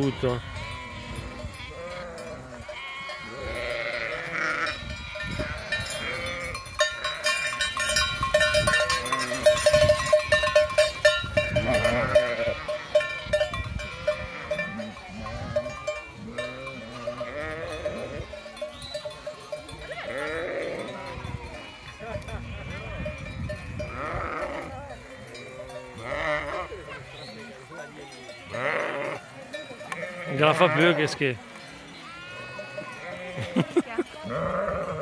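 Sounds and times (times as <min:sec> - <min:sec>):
sheep bleating: 0:00.0 - 0:06.6, 0:11.6 - 0:13.1, 0:13.8 - 0:18.3, 0:20.0 - 0:27.3, 0:28.4 - 0:29.3, 0:29.9 - 0:31.2, 0:32.0 - 0:35.0
animal bells clanking: 0:00.0 - 0:35.0.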